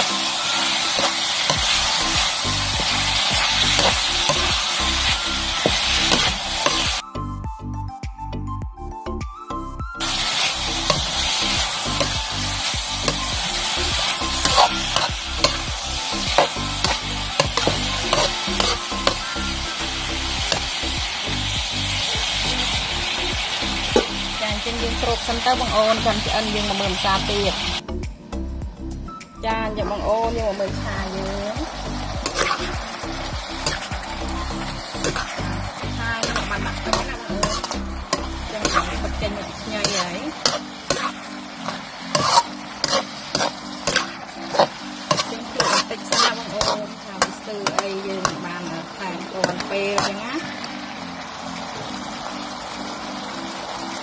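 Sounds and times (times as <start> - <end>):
meat sizzling in a wok: 0.0 - 7.0, 10.0 - 27.8, 29.9 - 54.0
metal spatula scraping wok: 0.0 - 7.0, 10.0 - 20.9, 32.2 - 50.7
background music with steady beat: 0.0 - 54.0.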